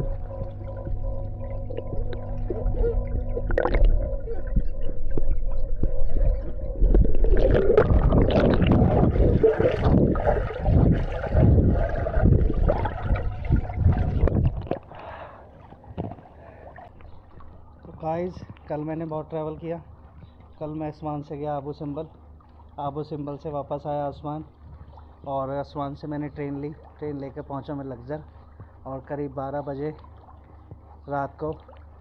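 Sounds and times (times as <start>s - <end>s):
low rumble: 0.0s - 14.9s
pool water sloshing and splashing: 0.0s - 32.0s.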